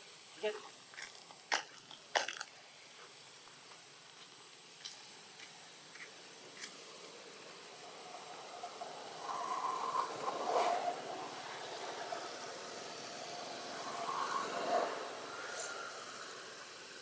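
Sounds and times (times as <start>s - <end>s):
outdoor hiss: 0.0s - 17.0s
passing vehicle engine: 6.8s - 17.0s.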